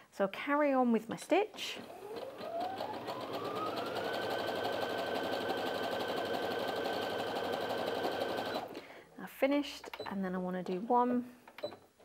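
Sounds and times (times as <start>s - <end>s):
sewing machine stitching: 1.8s - 8.8s.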